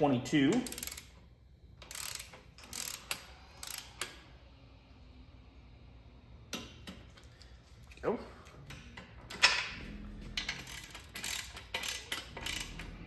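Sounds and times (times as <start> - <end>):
socket ratchet clicking: 0.5 - 1.1, 1.8 - 4.2, 10.4 - 13.0.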